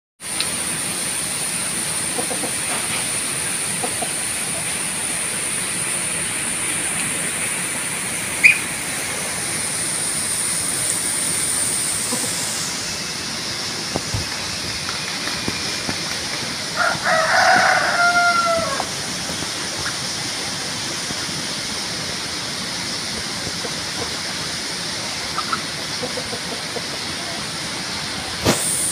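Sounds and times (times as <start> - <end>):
outdoor hiss: 0.2 - 28.9
thin high-pitched whine: 0.3 - 22.3
short sharp call: 8.4 - 8.8
rooster crowing: 16.8 - 19.0.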